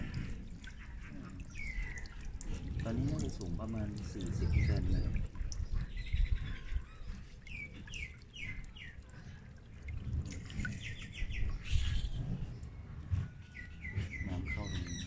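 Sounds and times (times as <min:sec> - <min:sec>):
fountain splashing into water: 0:00.0 - 0:11.2
small birds chirping: 0:00.0 - 0:15.0.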